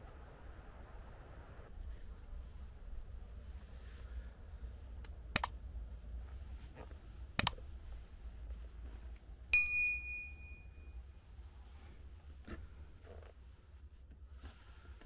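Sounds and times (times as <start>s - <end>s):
mouse clicks: 5.4s - 5.6s, 7.4s - 7.6s
bright bell ding: 9.5s - 11.0s.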